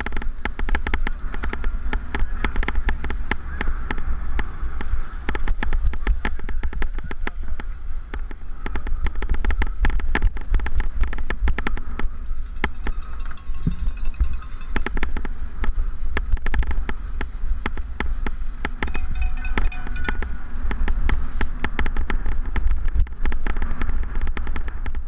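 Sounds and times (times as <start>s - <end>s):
wind buffeting microphone: 0.0s - 25.0s
mountain bike rattling and clattering: 10.4s - 16.9s, 18.7s - 25.0s.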